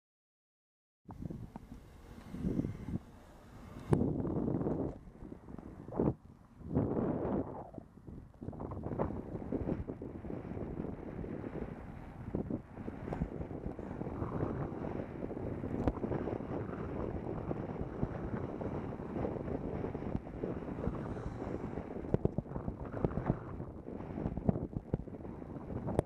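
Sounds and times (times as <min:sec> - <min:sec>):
wind rushing over microphone: 0:01.1 - 0:26.0.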